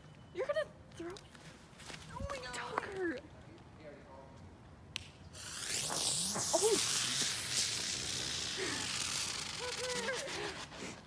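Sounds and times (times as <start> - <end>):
ground firework fizzing: 5.3 - 10.7.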